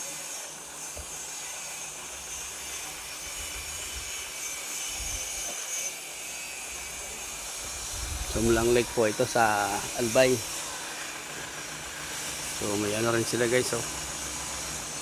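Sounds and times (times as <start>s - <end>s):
steady hiss: 0.0s - 15.0s
wind buffeting microphone: 7.7s - 9.0s.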